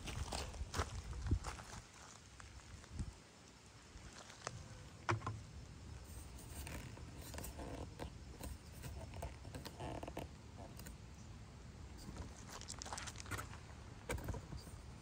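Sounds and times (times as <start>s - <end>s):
footsteps crunching on gravel: 0.0s - 3.1s, 4.0s - 4.6s, 12.1s - 13.7s.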